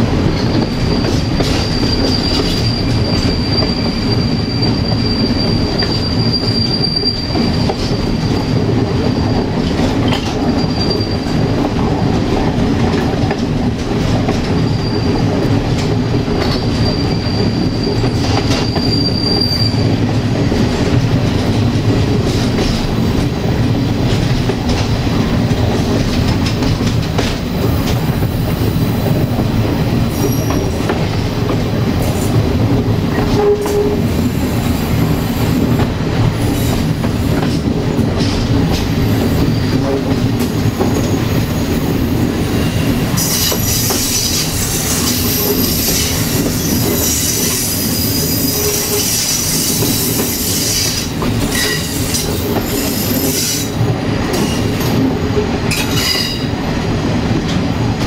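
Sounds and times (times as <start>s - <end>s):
wheels rumbling on rail: 0.0s - 58.0s
rail-joint clicks: 0.1s - 41.8s, 42.5s - 58.0s
wheel flanges squealing: 1.3s - 7.8s, 16.4s - 20.0s.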